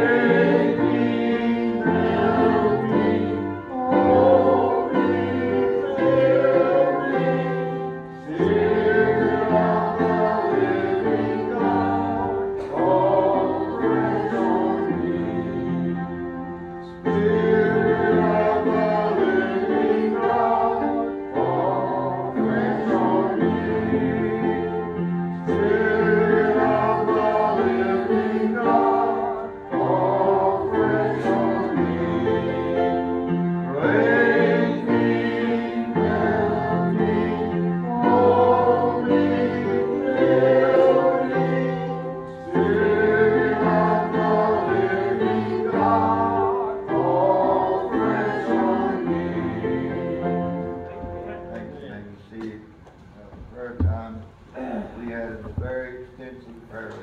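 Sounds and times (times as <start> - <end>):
group singing a hymn: 0.0 - 52.8
instrumental accompaniment: 0.0 - 54.6.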